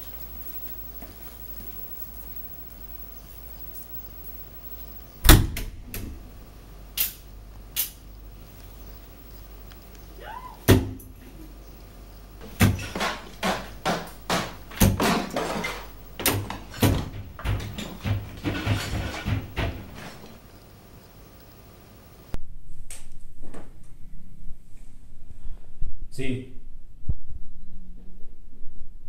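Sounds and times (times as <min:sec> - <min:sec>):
wooden door shutting with bang: 0:05.2 - 0:06.1, 0:12.5 - 0:20.4
bangs and thuds: 0:12.4 - 0:20.4.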